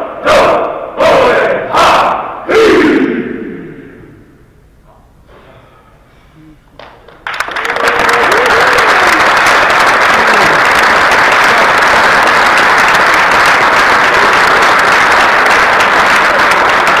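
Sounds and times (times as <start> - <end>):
crowd clapping: 6.8 - 17.0
whoops and shouts: 7.8 - 9.2.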